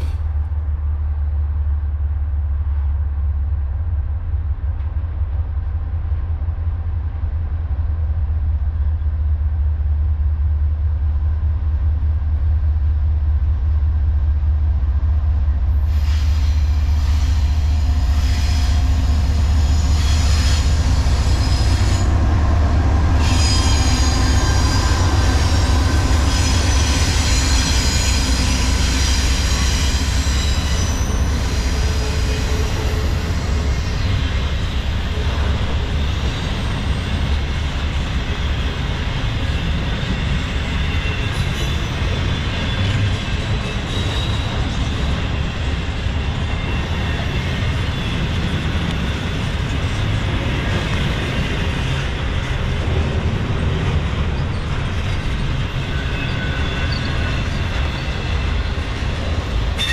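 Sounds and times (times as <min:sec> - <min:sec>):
train deep rumble: 0:00.0 - 0:59.9
wheels squealing on rails: 0:15.7 - 0:59.9.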